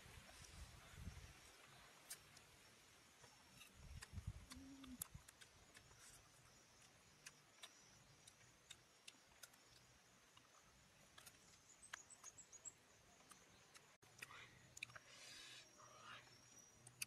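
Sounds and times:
faint ticks and clicks: 3.2s - 15.2s, 16.8s - 17.0s.

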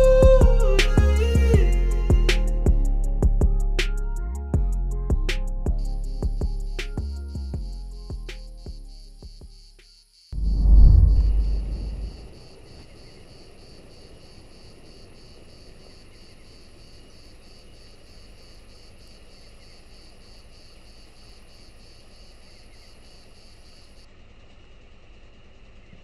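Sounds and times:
crickets chirping: 5.8s - 25.9s
faint low rumble: 10.4s - 12.8s.

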